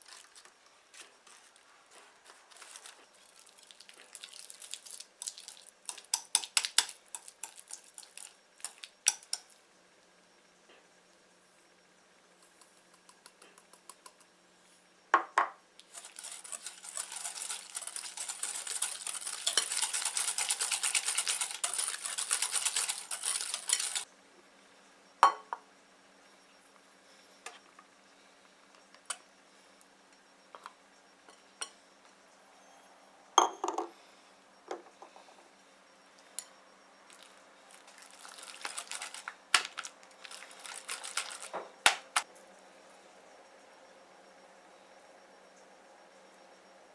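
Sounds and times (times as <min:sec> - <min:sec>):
whisk scraping glass bowl: 0:15.8 - 0:24.0.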